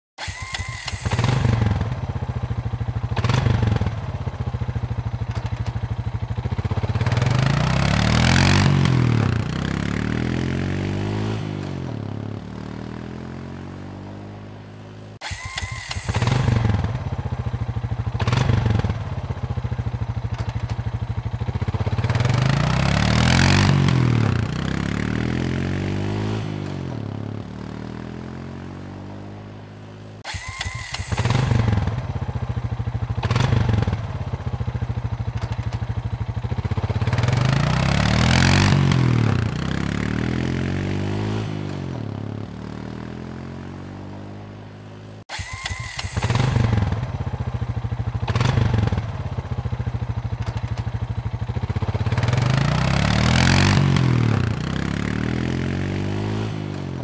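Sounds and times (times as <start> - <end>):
engine starting and revving: 0.2 - 2.3, 3.1 - 4.2, 6.6 - 13.6, 15.2 - 19.2, 21.4 - 28.5, 30.2 - 34.3, 36.6 - 43.5, 45.2 - 49.4, 51.7 - 57.0.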